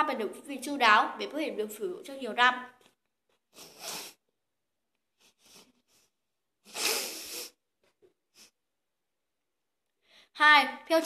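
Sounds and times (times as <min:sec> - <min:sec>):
person breathing: 0:03.5 - 0:04.2, 0:05.2 - 0:07.6, 0:10.0 - 0:10.4.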